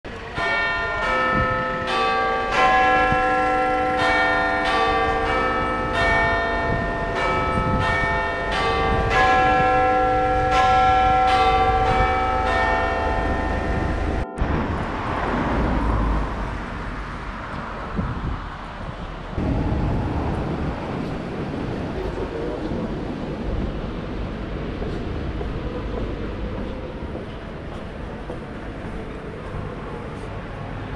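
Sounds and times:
wind: 0.0s - 30.9s
street noise: 0.1s - 30.9s
bells chiming: 0.3s - 14.4s.

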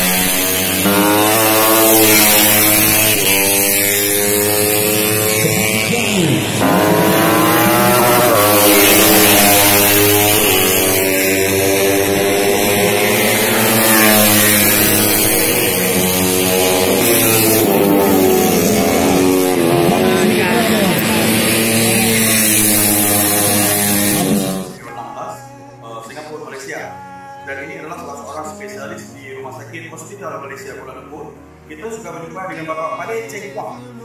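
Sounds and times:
motorcycle passing close: 0.0s - 24.8s
racing motorcycle engines revving: 0.0s - 24.8s.

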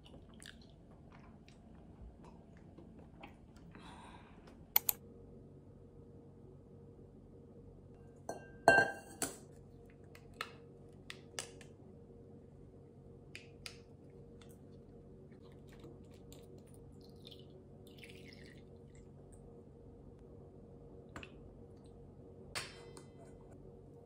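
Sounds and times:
low steady hum: 0.0s - 24.0s
glass and metal clink: 8.3s - 9.2s.

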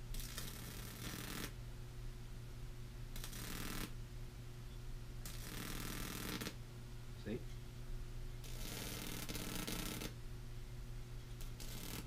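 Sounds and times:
electric arc buzzing crackle: 0.0s - 1.6s, 3.1s - 4.0s, 5.2s - 6.6s, 8.4s - 10.2s, 11.4s - 12.0s.

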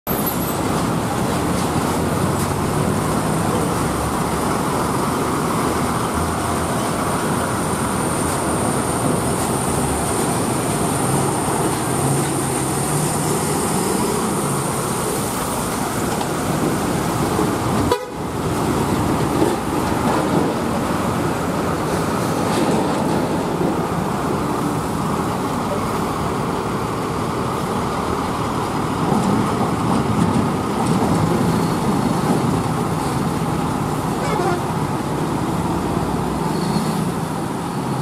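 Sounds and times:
lorry diesel engines: 0.1s - 38.0s
horn toots: 17.8s - 18.3s, 34.2s - 34.7s.

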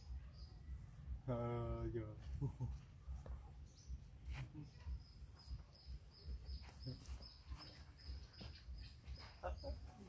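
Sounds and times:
bird chirping: 0.0s - 10.0s
faint low outdoor rumble: 0.0s - 10.0s.

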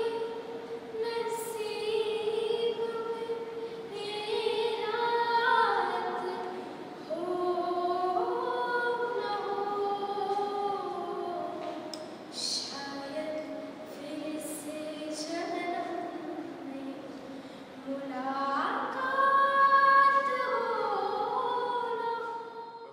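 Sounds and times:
young woman singing unaccompanied: 0.0s - 22.9s.

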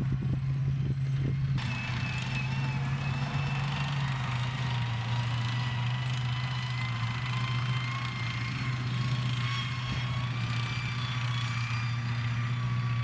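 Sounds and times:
tank engine drone: 0.0s - 13.0s.

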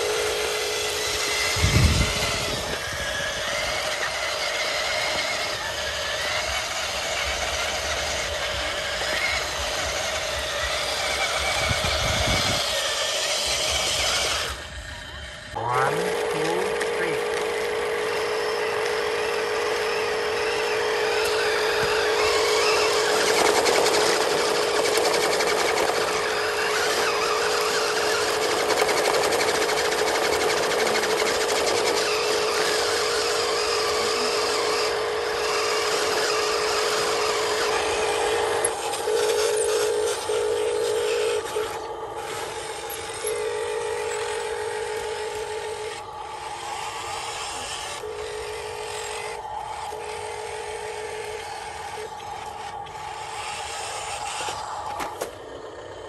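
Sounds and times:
electric motors whining: 0.0s - 56.0s
tyres scrubbing on gravelly dirt: 15.9s - 55.4s.

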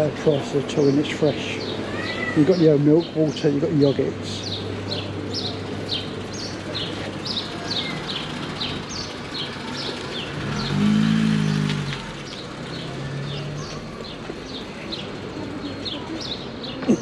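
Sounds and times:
small birds chirping: 0.0s - 17.0s
car passing: 6.7s - 15.3s.

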